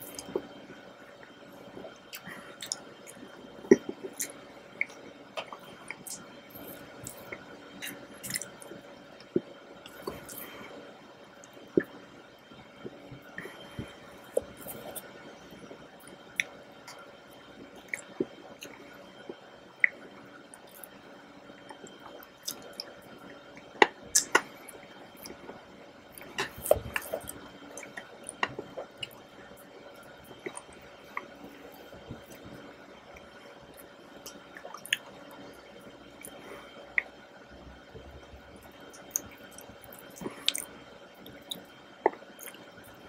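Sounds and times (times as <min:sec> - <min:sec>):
wet mouth eating sounds: 0:01.8 - 0:08.7, 0:23.8 - 0:24.5, 0:33.7 - 0:35.1, 0:38.6 - 0:42.6
wet chewing: 0:38.8 - 0:42.6.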